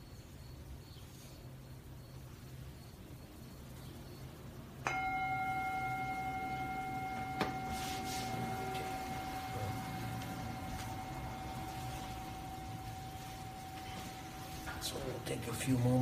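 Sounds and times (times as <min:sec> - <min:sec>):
meditation bell ringing: 0:04.8 - 0:16.0.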